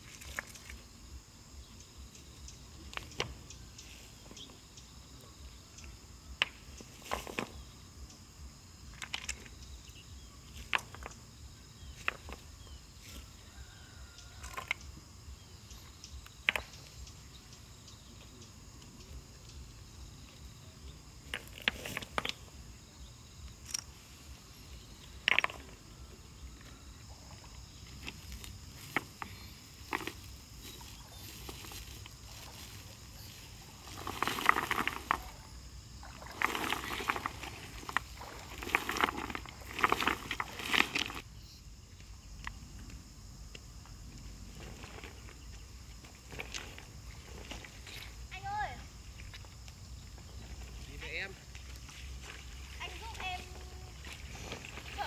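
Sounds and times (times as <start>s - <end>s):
high-pitched insect drone: 0.0s - 55.0s.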